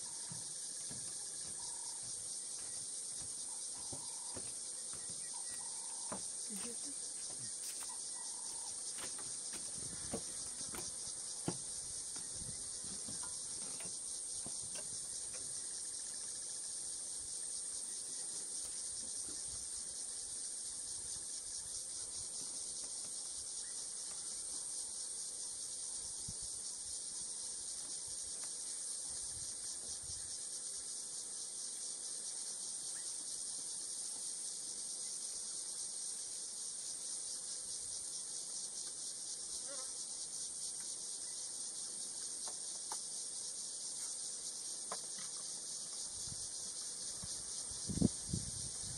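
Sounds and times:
high-pitched insect chorus: 0.0 - 48.9.

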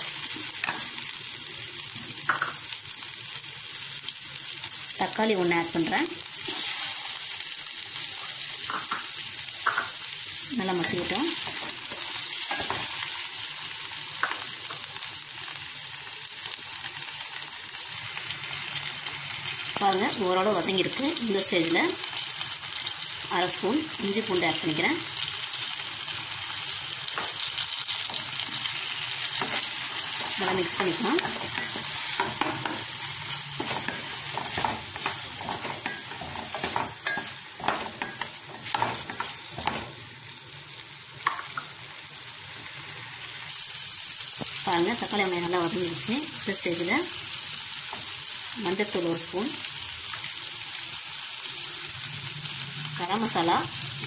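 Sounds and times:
food sizzling in hot oil: 0.0 - 54.0
spatula scraping and tapping pan: 29.4 - 32.9, 33.5 - 40.0.

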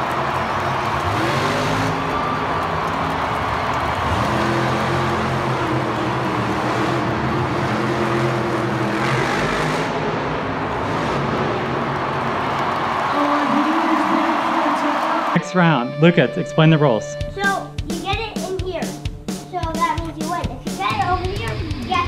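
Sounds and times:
monster truck engine revving: 0.0 - 15.9
arena din: 13.0 - 19.8.

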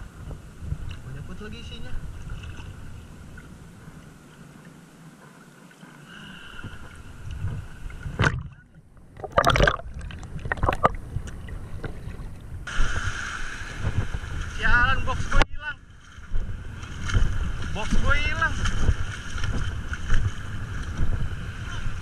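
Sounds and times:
sea water lapping and sloshing: 0.0 - 22.0
loud water splashing: 9.2 - 11.0, 12.7 - 15.4.

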